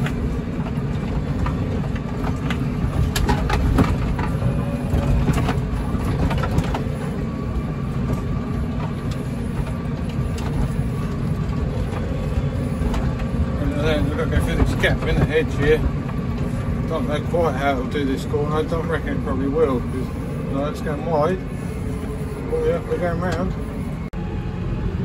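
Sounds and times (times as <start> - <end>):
knocks and rattles: 0.0 - 17.5
tractor engine rumbling: 0.0 - 25.0.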